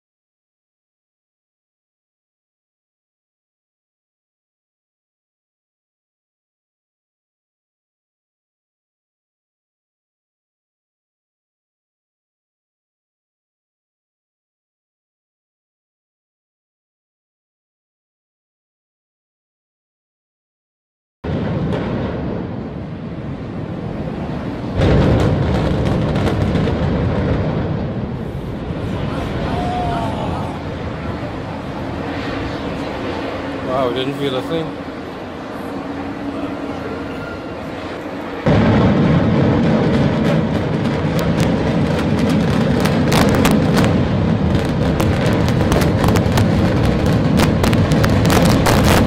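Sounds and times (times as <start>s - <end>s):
loud explosion boom: 21.2s - 49.0s
low rumble: 21.3s - 49.0s
sharp demolition cracks: 24.1s - 28.3s, 38.5s - 49.0s.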